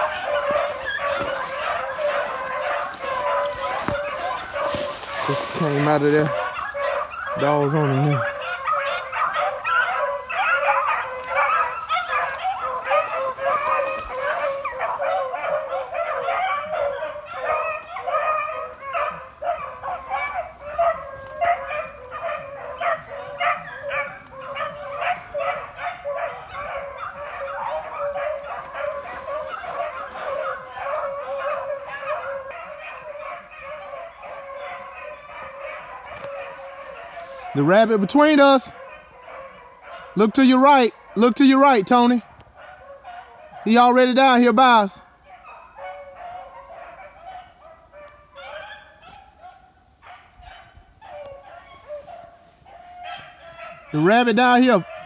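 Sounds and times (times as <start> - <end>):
pack of dogs baying: 0.0 - 55.0.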